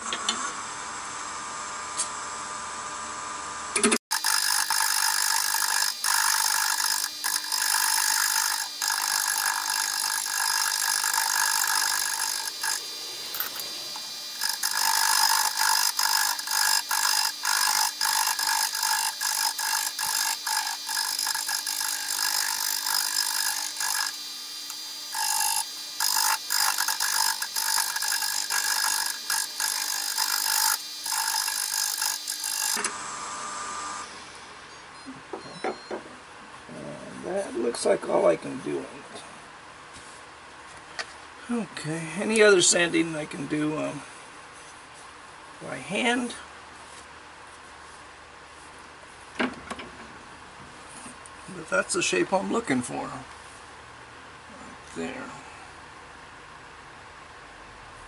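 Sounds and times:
turning tool scraping wood: 4.1 - 32.9
wood lathe running: 4.1 - 34.0.

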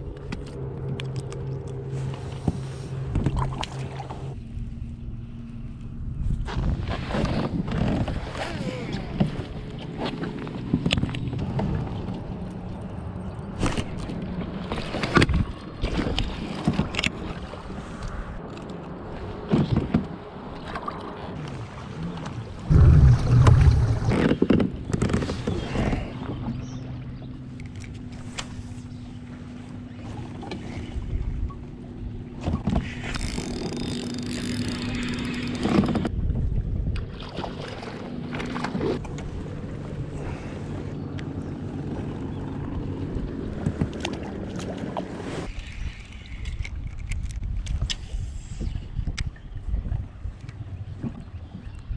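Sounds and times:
steady low hum: 0.0 - 16.1, 17.4 - 24.9
water: 0.0 - 51.9
wind: 0.0 - 51.9
loud low rumble: 22.4 - 24.2
fishing reel clicks and knocks: 33.1 - 36.1.

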